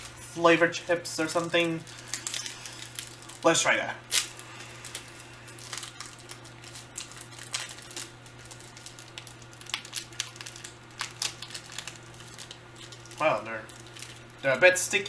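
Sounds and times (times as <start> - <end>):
plastic wrapper crinkling: 1.2 - 15.0.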